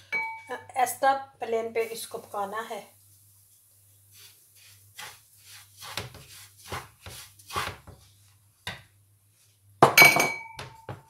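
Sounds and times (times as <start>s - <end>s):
wooden spoon scraping a pan: 1.8s - 8.4s.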